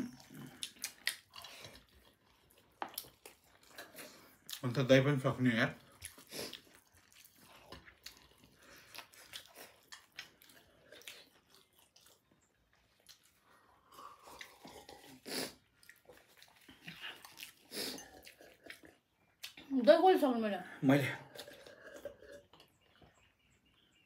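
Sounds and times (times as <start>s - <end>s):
chewing and wet mouth clicks: 0.0s - 4.7s, 5.8s - 19.7s.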